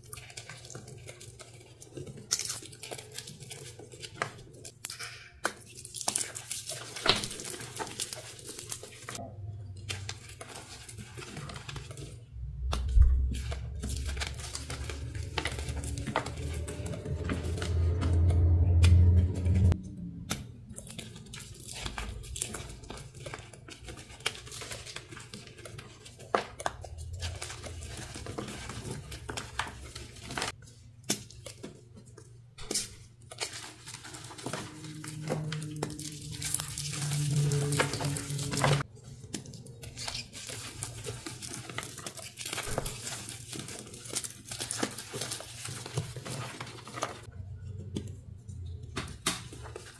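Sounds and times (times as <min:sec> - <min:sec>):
low rumble: 0:09.2 - 0:24.7, 0:26.4 - 0:30.5, 0:33.6 - 0:38.9.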